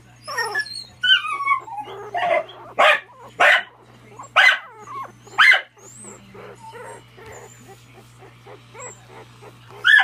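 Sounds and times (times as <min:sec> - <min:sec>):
puppies whimpering and grunting: 0:00.0 - 0:10.0
puppy barking sharply: 0:02.3 - 0:03.7.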